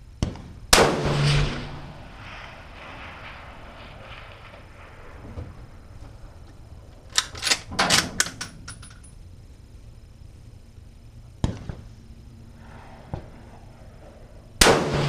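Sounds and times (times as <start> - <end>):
rifle bolt clicks and rattle: 7.1 - 9.2.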